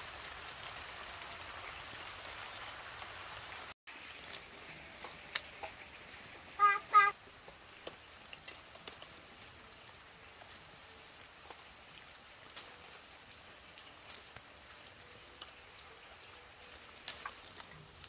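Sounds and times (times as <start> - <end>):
faint steady hiss: 0.0 - 18.0
leaves rustling: 0.0 - 18.0
pepper stems snapping: 17.0 - 17.7.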